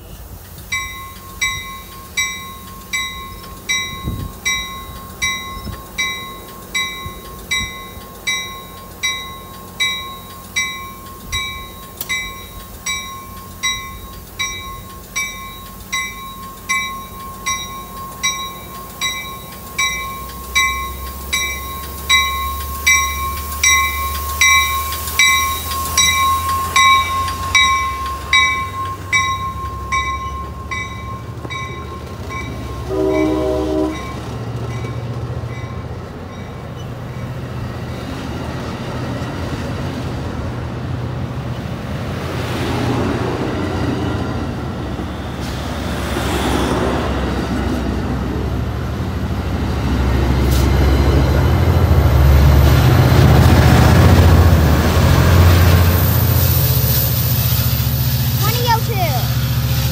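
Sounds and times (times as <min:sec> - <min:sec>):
low rumble of train: 0:00.0 - 0:59.9
steady high tone: 0:00.7 - 0:36.8
warning bell striking: 0:00.8 - 0:35.7.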